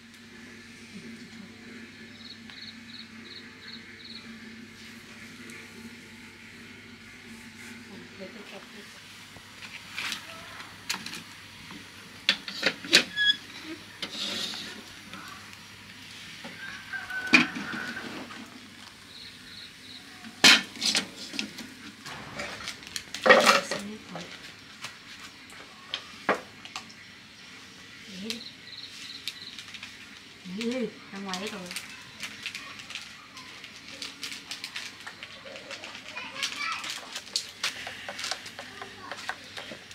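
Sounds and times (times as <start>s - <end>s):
cooking utensils clinking and clattering: 20.4s - 24.4s.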